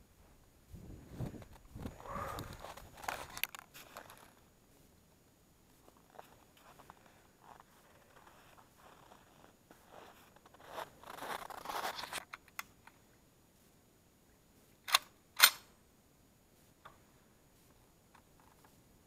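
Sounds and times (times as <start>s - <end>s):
rustling and crunching: 0.9s - 5.0s, 5.7s - 12.5s.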